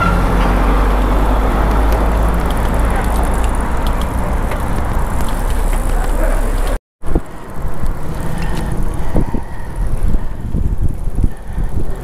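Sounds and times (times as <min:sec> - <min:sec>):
city traffic noise: 0:00.0 - 0:12.0
wind noise on microphone: 0:06.6 - 0:12.0.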